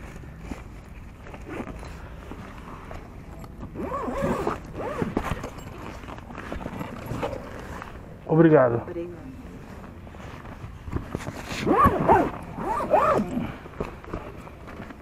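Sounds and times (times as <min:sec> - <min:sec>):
bag zipper pulled: 0:03.8 - 0:05.8, 0:11.4 - 0:13.5.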